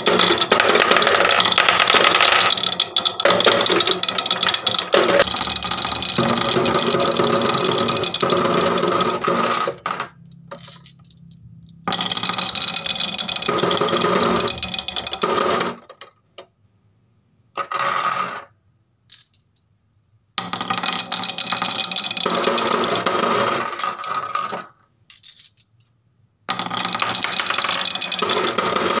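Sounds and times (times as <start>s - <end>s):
glass marbles clattering: 0.0s - 15.2s.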